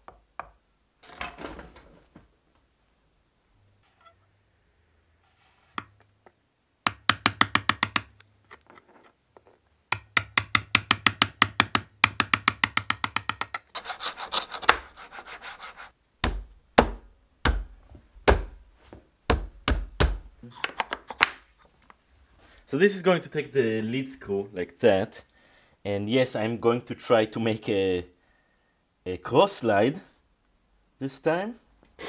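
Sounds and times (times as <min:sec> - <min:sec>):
chisel paring scrapes: 0:13.6 - 0:15.9.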